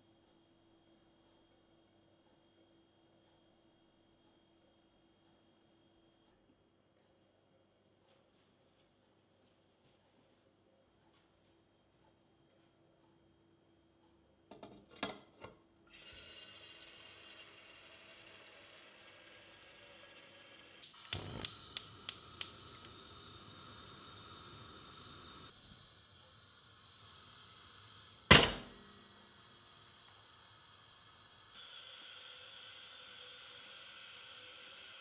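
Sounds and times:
tap water running: 0:15.9 - 0:35.0
gas burner hissing: 0:16.0 - 0:35.0
gas igniter clicking: 0:20.8 - 0:25.5, 0:28.1 - 0:29.2
pot clunking on grate: 0:28.3 - 0:28.8.

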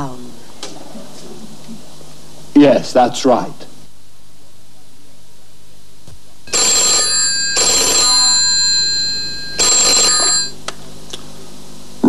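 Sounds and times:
telephone ringing: 0:06.5 - 0:10.6.

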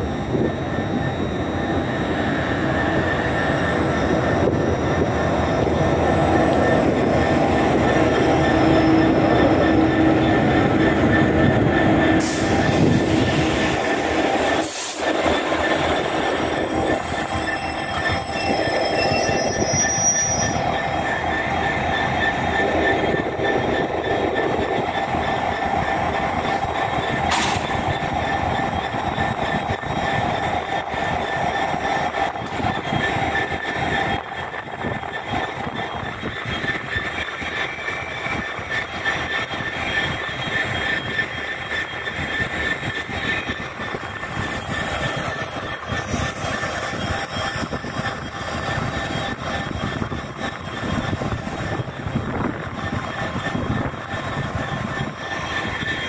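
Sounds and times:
diesel locomotive idling: 0:00.0 - 0:18.9.

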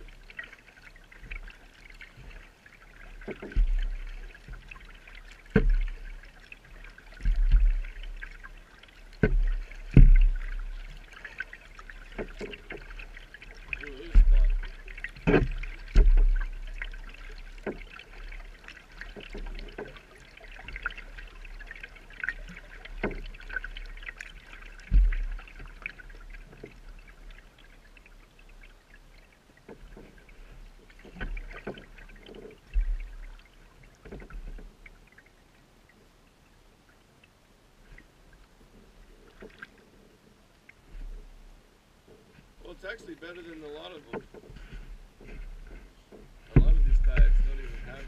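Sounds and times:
paddle splashing water: 0:00.0 - 0:48.0
low thumps: 0:14.1 - 0:16.7, 0:46.4 - 0:48.0.

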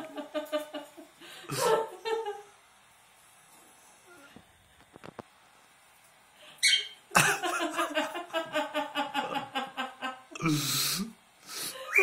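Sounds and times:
person laughing: 0:00.0 - 0:02.5, 0:07.1 - 0:10.7, 0:11.6 - 0:12.0
cockatiel chirp: 0:06.6 - 0:07.0.

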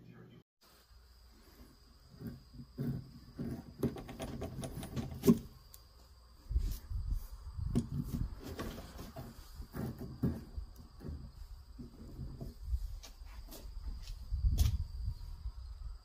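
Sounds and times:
metal fitting scraping in wood: 0:02.1 - 0:05.6.

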